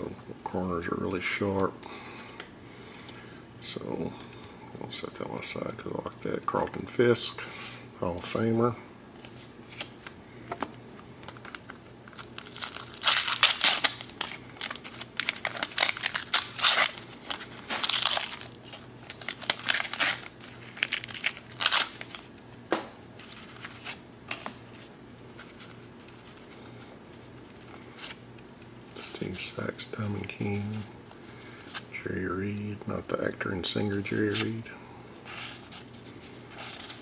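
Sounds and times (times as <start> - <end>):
paper wrapper crinkling and tearing: 11.2 - 22.3.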